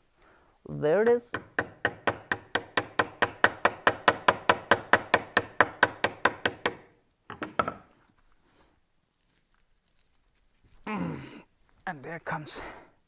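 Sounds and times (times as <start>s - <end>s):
hammer striking metal: 1.1s - 6.9s.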